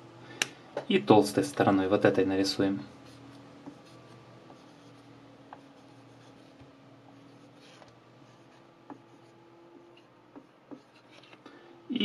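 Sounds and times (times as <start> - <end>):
marker scratching on tile: 3.0 - 11.4.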